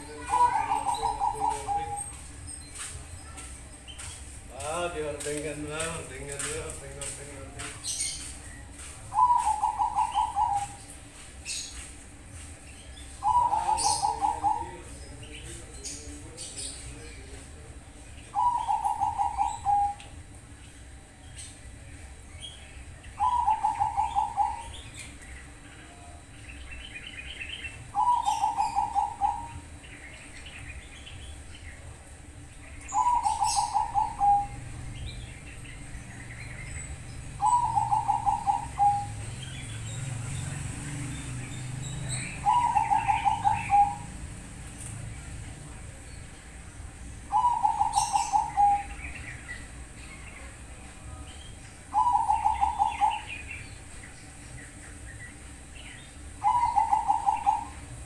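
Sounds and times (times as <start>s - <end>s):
dove cooing song: 0.0s - 2.4s, 7.8s - 11.9s, 13.0s - 17.6s, 18.2s - 20.3s, 23.1s - 25.6s, 26.6s - 31.3s, 32.2s - 44.7s, 47.2s - 50.6s, 51.8s - 55.0s, 55.8s - 58.0s.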